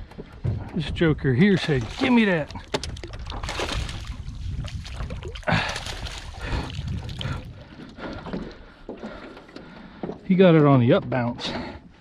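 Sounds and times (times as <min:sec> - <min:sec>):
fish splashing: 0:01.5 - 0:09.7.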